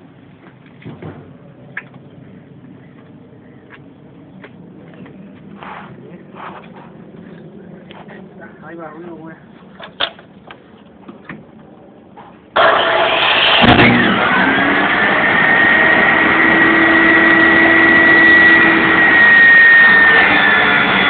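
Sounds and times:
power saw motor whine: 12.6 - 21.0.

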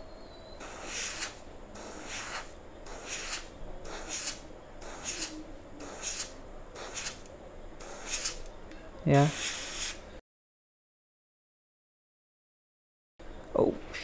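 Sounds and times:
airbrush spraying in hissing bursts: 0.6 - 8.5, 9.2 - 10.0.

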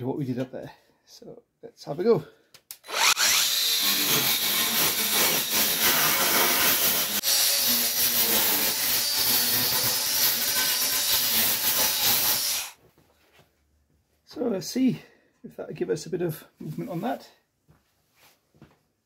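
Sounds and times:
angle grinder cutting sheet steel: 2.8 - 12.8.

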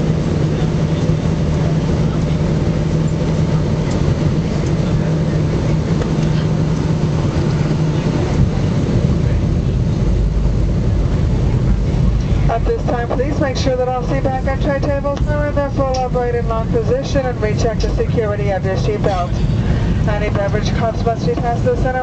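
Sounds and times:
deep rumble: 0.0 - 22.0
jet engine and airflow drone: 0.0 - 22.0
low hum: 0.0 - 22.0.

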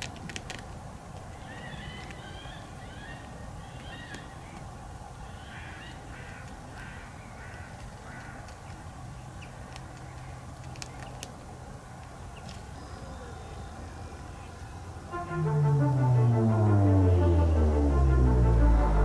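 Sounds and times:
bird calling: 1.3 - 4.6
low background rumble: 15.0 - 19.0.

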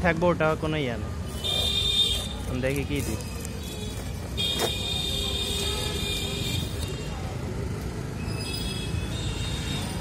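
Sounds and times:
street traffic rumble: 0.0 - 10.0
vehicle horn: 3.7 - 7.0.

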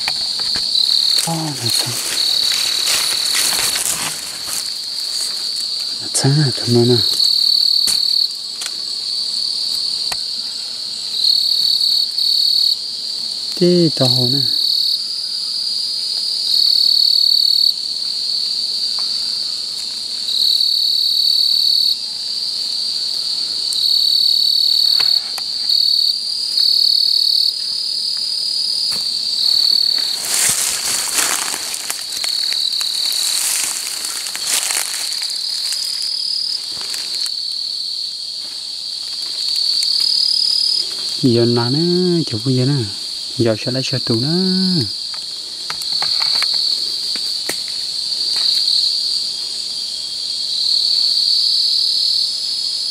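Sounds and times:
rustling of leaves: 0.0 - 10.7, 28.6 - 43.5
night insects trilling: 0.0 - 52.9.

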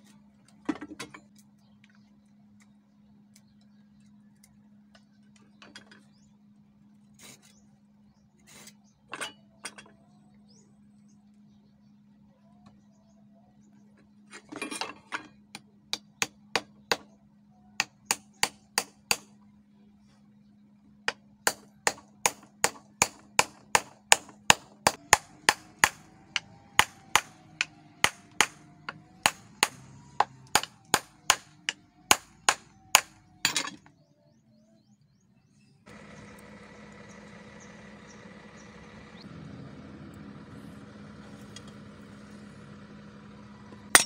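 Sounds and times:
hammer striking metal: 17.8 - 19.3, 21.5 - 33.9.

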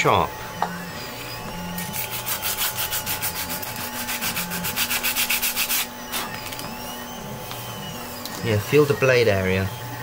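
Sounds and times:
sanding sponge rubbing plastic: 1.9 - 5.9.

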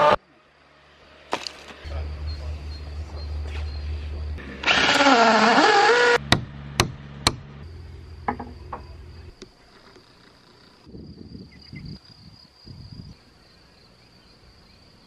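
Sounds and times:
cordless drill driving screw: 4.6 - 6.2
sharp knocks: 6.2 - 7.5, 8.2 - 8.9.

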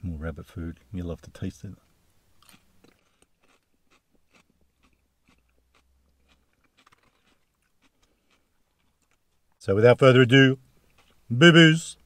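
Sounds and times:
faint chewing of lettuce: 2.4 - 9.6.

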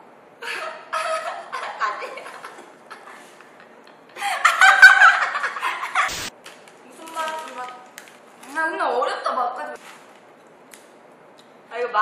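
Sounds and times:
girls giggling and laughing: 0.4 - 6.1.

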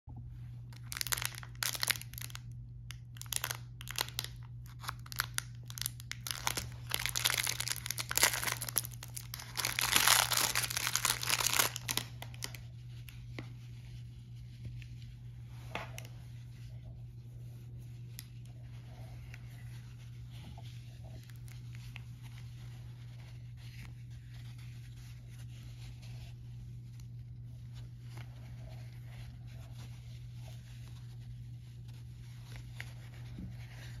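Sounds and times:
steady low hum: 0.1 - 34.0
plastic wrapper crinkling and tearing: 0.7 - 13.2, 20.6 - 31.2
faint rustling of gauze: 3.3 - 34.0.

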